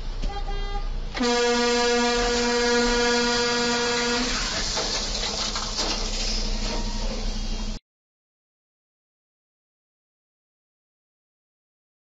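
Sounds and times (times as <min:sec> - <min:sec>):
vehicle horn blast: 0:00.2 - 0:04.5.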